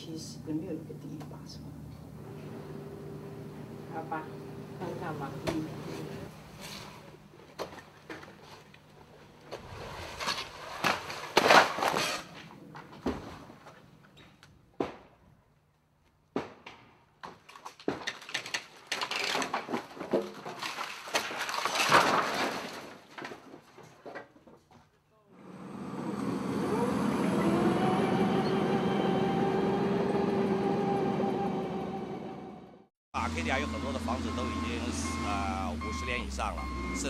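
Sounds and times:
crashing and scraping: 6.0s - 14.0s, 16.4s - 25.0s.

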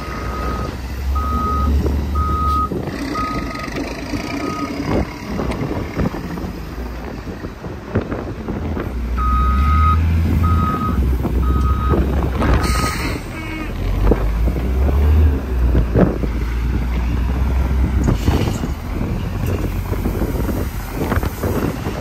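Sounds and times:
truck reversing alarm beeps: 0.0s - 5.8s, 9.2s - 13.7s
truck engine rumble: 0.0s - 22.0s.

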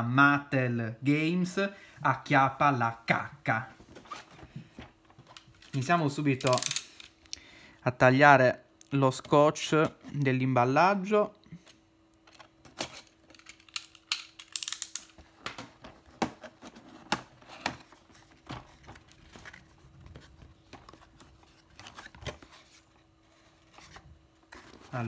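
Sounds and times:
cardboard and tape rustling: 14.6s - 25.0s.

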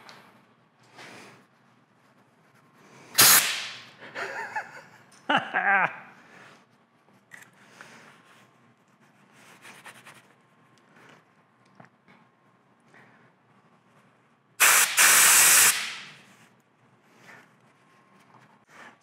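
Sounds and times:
compressed air blow gun bursts: 3.2s - 3.9s, 14.6s - 16.1s.

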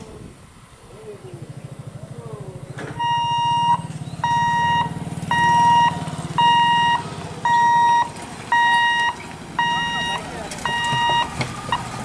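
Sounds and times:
warning hooter beeping: 2.9s - 12.0s.

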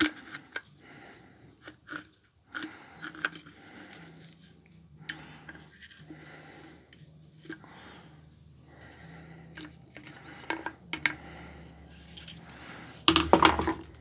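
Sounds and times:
plastic parts rubbing and knocking: 0.0s - 0.8s, 1.5s - 6.2s, 9.5s - 14.0s
plastic clattering on metal bench: 13.0s - 14.0s.

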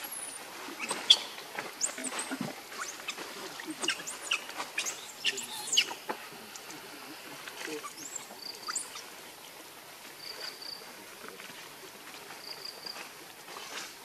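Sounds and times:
baby monkey squeaking: 0.8s - 6.0s.

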